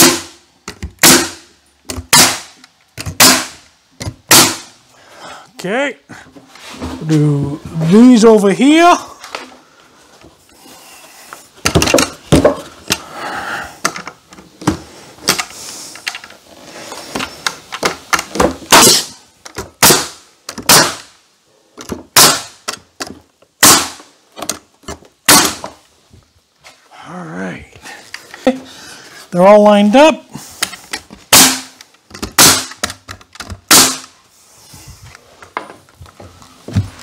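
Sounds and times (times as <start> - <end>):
nail gun shots: 0.0 - 3.6, 4.2 - 4.7, 18.7 - 19.2, 19.8 - 21.1, 22.1 - 22.8, 23.6 - 24.0, 25.3 - 25.7, 31.3 - 34.1.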